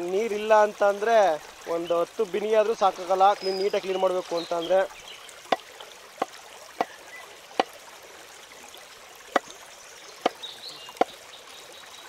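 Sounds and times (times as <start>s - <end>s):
water trickling: 0.0s - 12.0s
sharp knocks: 5.5s - 7.0s.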